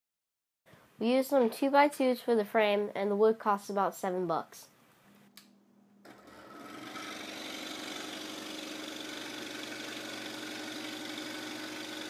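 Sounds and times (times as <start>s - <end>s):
electric drill motor humming: 6.1s - 12.0s.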